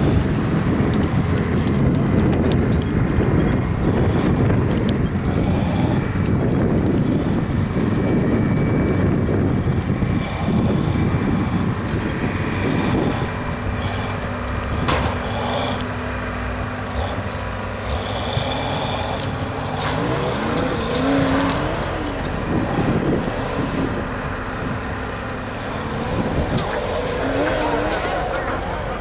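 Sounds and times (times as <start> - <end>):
engine revving under load: 0.0 - 29.0.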